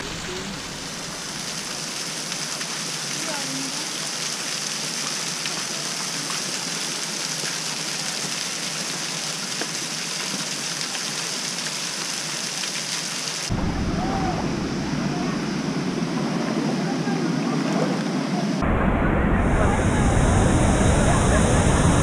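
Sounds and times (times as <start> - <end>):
waterfalls splashing on rock: 0.0 - 15.9
deep rush of water: 0.0 - 22.0.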